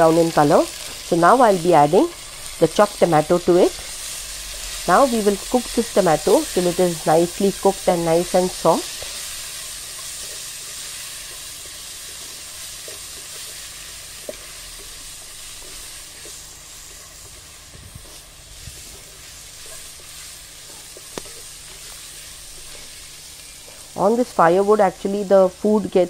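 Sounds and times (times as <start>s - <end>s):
onions and tomatoes sizzling in oil: 0.0s - 26.0s
wooden spatula stirring and scraping: 8.4s - 24.0s.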